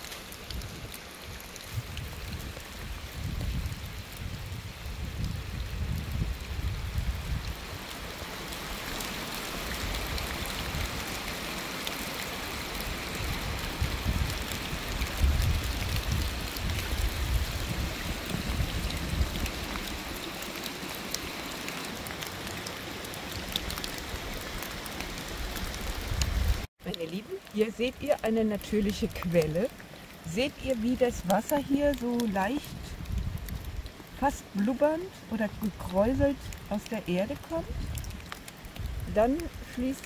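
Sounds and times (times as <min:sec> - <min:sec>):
wind rumble on microphone: 0:00.0 - 0:08.8, 0:09.6 - 0:11.2, 0:12.6 - 0:20.6, 0:23.3 - 0:26.7, 0:28.7 - 0:39.9
running and dripping water: 0:00.0 - 0:40.0
small water drips: 0:00.0 - 0:40.0.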